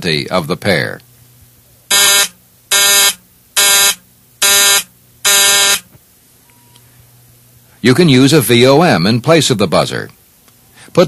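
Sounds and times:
short buzzer buzzes: 1.9 - 5.9.

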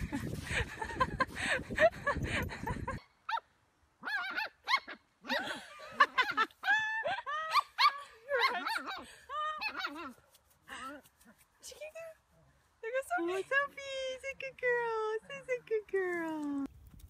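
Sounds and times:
small dog yipping and whining: 4.0 - 5.4.

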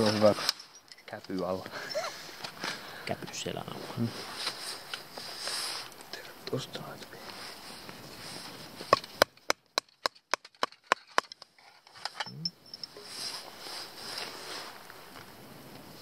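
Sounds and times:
rustling scrape: 0.0 - 0.8, 3.7 - 6.0, 7.2 - 8.9, 12.9 - 15.3.

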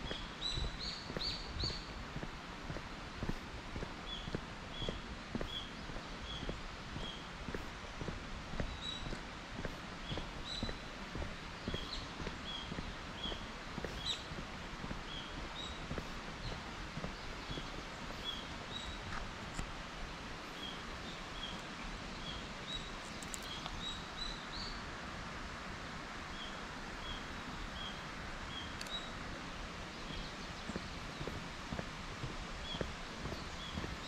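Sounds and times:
bird chirping: 0.0 - 2.0, 11.6 - 14.4
footsteps on asphalt: 0.0 - 24.6, 28.5 - 34.0
outdoor background noise: 0.0 - 34.0.

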